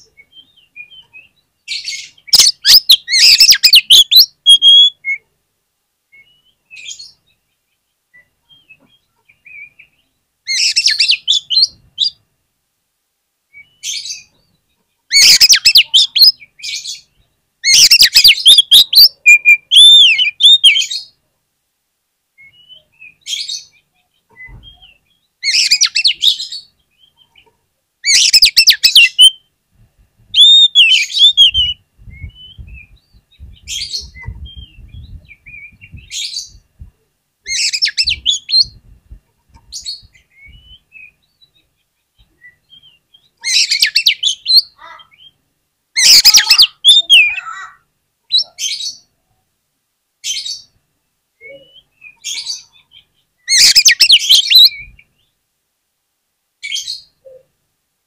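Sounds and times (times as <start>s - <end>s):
bird singing: 0.0s - 5.3s, 13.5s - 21.2s, 22.4s - 29.6s, 30.3s - 36.7s, 37.5s - 38.8s, 39.6s - 45.4s, 46.0s - 49.1s, 51.4s - 55.4s.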